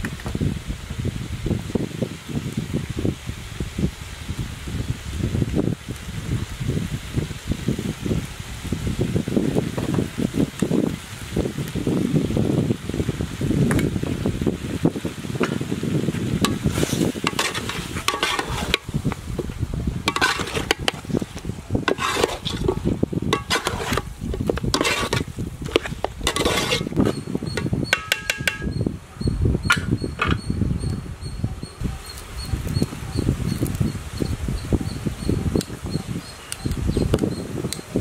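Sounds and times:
spoon scraping and stirring in pot: 16.4s - 28.7s.

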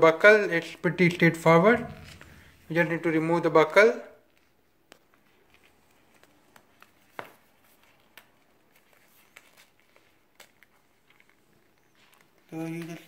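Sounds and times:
strap rustling: 4.2s - 13.0s.

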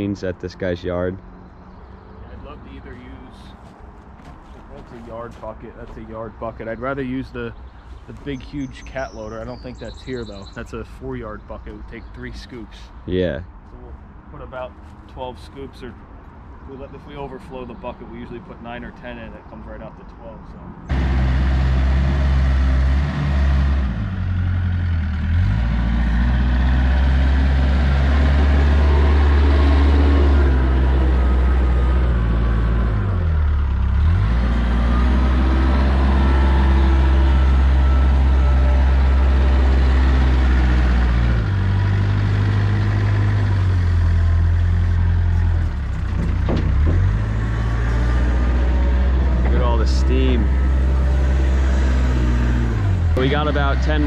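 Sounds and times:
diesel engine under load: 20.9s - 54.0s.

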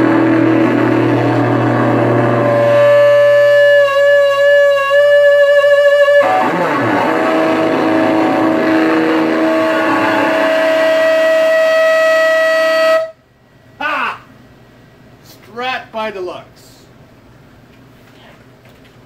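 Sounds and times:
distorted electric guitar: 0.0s - 13.1s.

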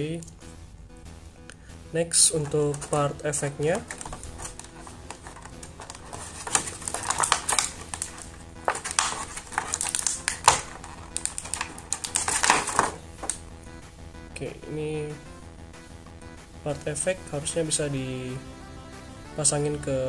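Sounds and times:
faint background music: 0.0s - 20.0s
plastic blister tray crinkling: 2.1s - 13.4s.

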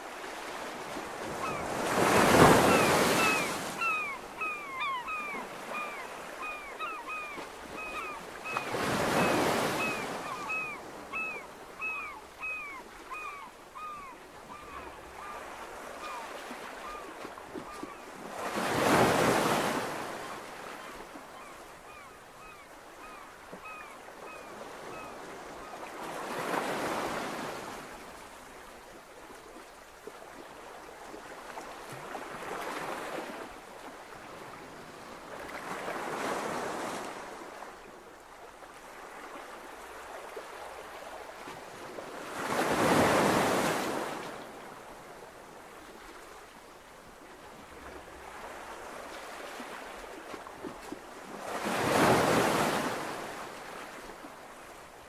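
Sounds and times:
ocean waves on a shore: 0.0s - 55.0s.

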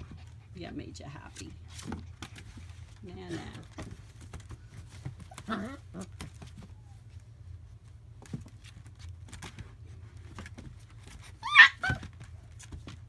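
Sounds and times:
puppies scuffling: 0.0s - 13.0s
small clicks and rustles: 1.4s - 13.0s
puppy cries: 5.3s - 7.0s, 11.3s - 12.2s.

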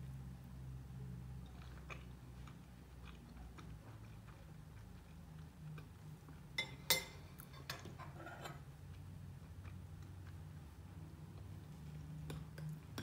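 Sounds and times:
soft chewing: 1.0s - 13.0s
metal spoon clinking on ceramic bowl: 6.6s - 8.6s.

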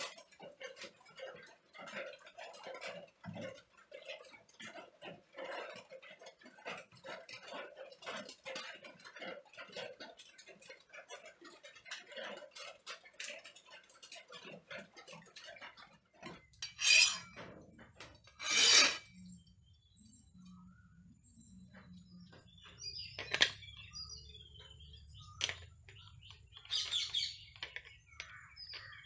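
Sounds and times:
water crackling on hot steel: 0.0s - 19.9s
file scraping steel: 16.4s - 19.2s.

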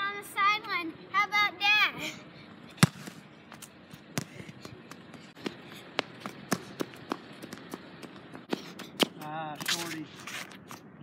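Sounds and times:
sneakers running on hard court: 4.2s - 9.2s.

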